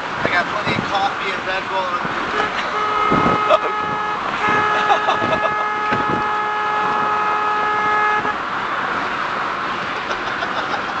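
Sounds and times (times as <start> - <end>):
road and tyre noise: 0.0 - 11.0
car horn steady note: 2.3 - 8.4.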